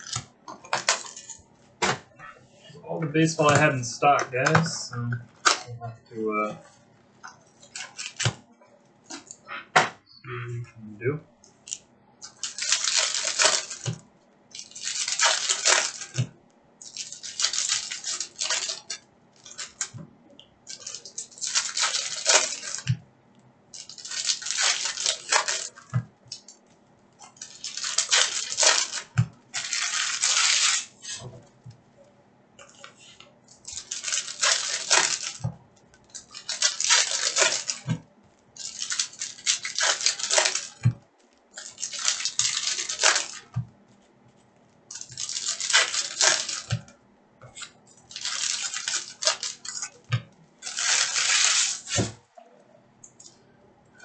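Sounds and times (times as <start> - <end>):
foil card packs tearing and crinkling: 0.0 - 1.4, 3.2 - 5.6, 7.6 - 8.4, 12.2 - 20.0, 20.7 - 23.0, 23.7 - 26.5, 27.2 - 31.3, 33.6 - 38.0, 38.6 - 43.6, 44.9 - 46.9, 47.6 - 52.2.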